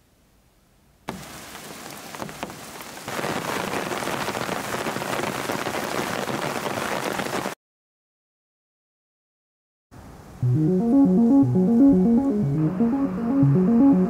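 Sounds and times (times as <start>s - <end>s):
heavy rain on foliage: 1.1s - 7.6s.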